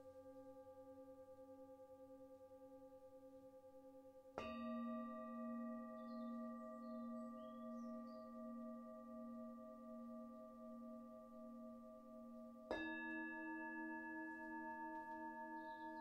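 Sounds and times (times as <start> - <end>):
soft ringing of bowls: 0.0 - 16.0
singing bowl struck and ringing: 4.4 - 16.0.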